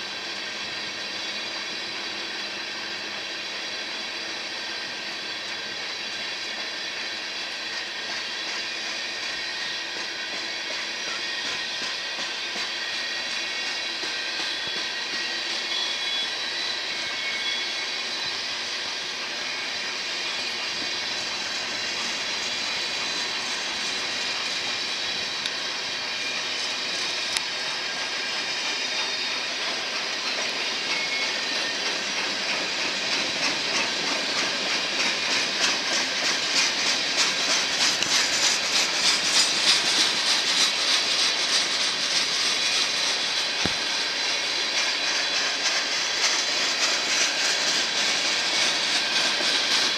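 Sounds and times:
train wheels hissing on rails: 0:00.0 - 0:49.9
wheels clicking over rail joints: 0:31.8 - 0:43.9.

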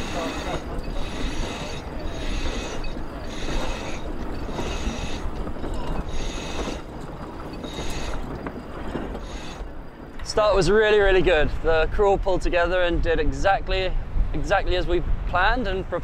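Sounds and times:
rope ratcheting through blocks: 0:00.0 - 0:09.8
wind and water rumble: 0:00.0 - 0:16.0.

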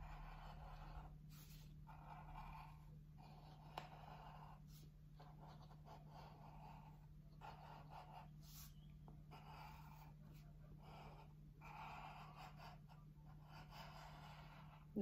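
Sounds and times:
pen scratching on paper: 0:00.0 - 0:15.0
steady low hum: 0:00.0 - 0:15.0.

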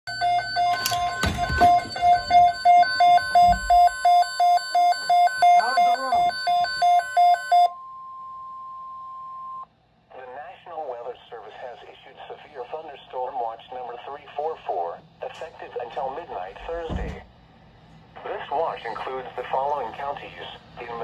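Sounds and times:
shrill pulsing beep: 0:00.1 - 0:09.7.

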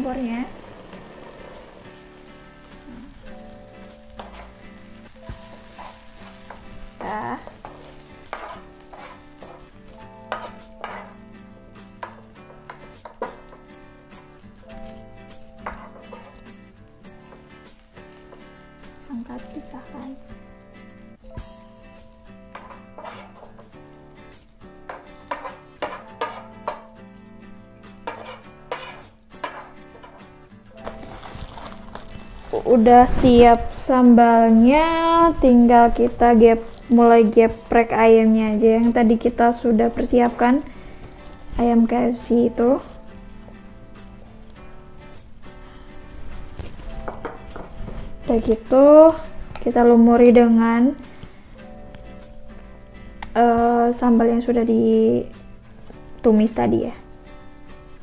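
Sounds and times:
food sizzling in hot oil: 0:00.0 - 0:49.6
background music: 0:00.0 - 0:58.0
spatula scraping and knocking pan: 0:04.0 - 0:11.3, 0:11.9 - 0:15.0, 0:15.6 - 0:16.6, 0:17.2 - 0:18.6, 0:22.5 - 0:23.7, 0:24.8 - 0:26.9, 0:28.0 - 0:32.7.

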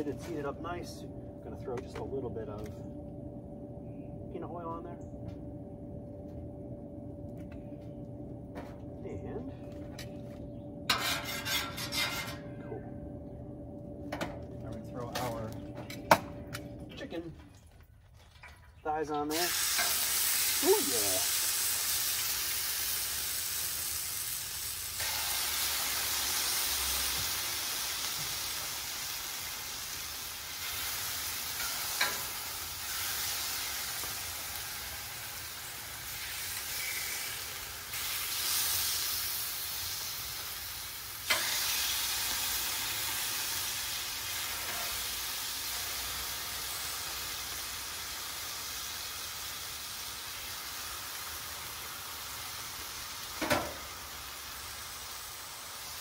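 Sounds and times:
chicken sizzling on griddle: 0:19.2 - 0:56.0.

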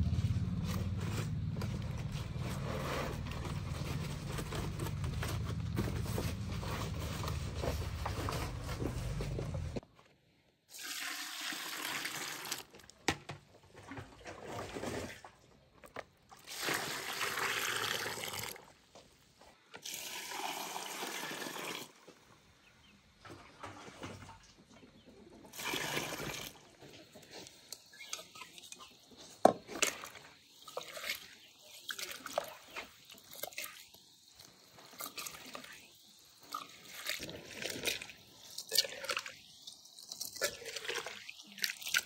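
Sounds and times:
water splashing and pouring: 0:10.7 - 0:13.0, 0:13.6 - 0:18.8, 0:19.8 - 0:22.0, 0:25.5 - 0:42.0.

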